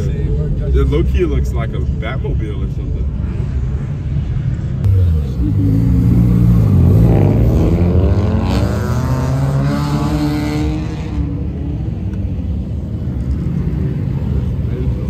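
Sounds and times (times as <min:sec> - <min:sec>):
passing cars accelerating: 0:04.8 - 0:15.0.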